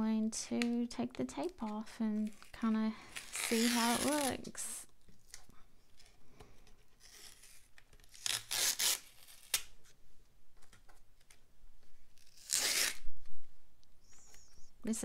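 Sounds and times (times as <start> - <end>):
masking tape peeling off paper: 2.2 - 4.5, 7.0 - 9.8, 12.1 - 13.0.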